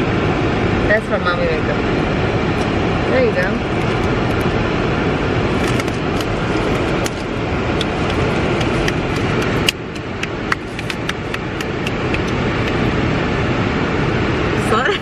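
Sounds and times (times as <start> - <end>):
car air conditioning blowing: 0.0 - 15.0
sharp snap: 7.8 - 12.9.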